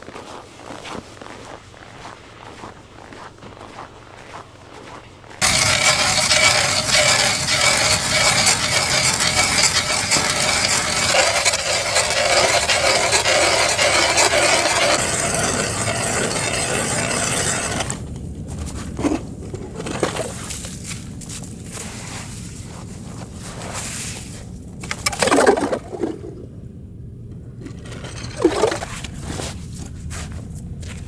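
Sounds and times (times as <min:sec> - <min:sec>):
ice auger grinding: 0:05.4 - 0:18.0.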